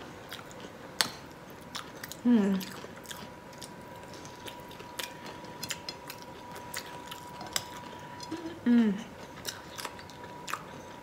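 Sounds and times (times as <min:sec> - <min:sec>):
chewing crunchy shrimp shells: 0:00.2 - 0:11.0
person humming mm: 0:02.2 - 0:02.7, 0:08.3 - 0:09.1.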